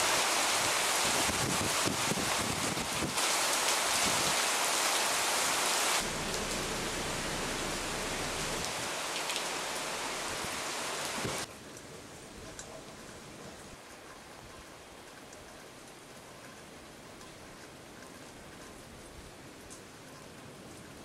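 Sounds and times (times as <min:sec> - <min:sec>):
rain hissing: 0:00.0 - 0:11.5.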